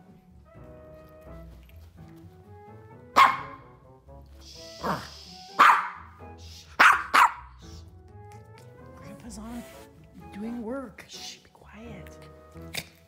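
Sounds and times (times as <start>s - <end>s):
small dog barking: 3.2s - 3.7s, 5.6s - 6.1s, 6.8s - 7.6s.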